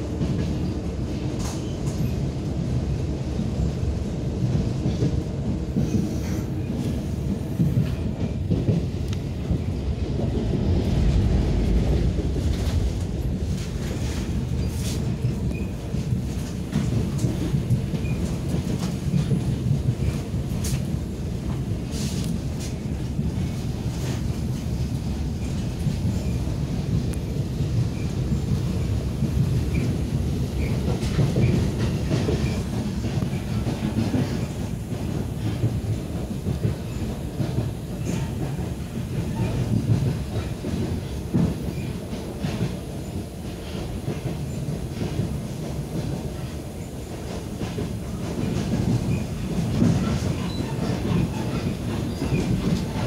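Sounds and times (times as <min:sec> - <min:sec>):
train wheels rumbling on rails: 0:00.0 - 0:53.0
wheels clacking over rail joints: 0:11.0 - 0:53.0.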